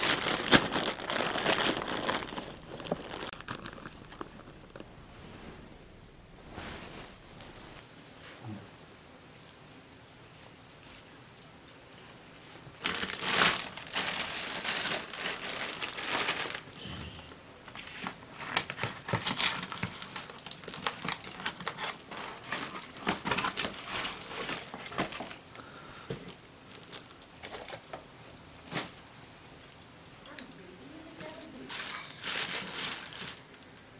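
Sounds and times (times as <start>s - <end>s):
packaging crinkling and rustling: 0.0s - 5.6s, 12.7s - 16.8s, 17.6s - 25.5s, 26.1s - 29.0s, 31.2s - 33.9s.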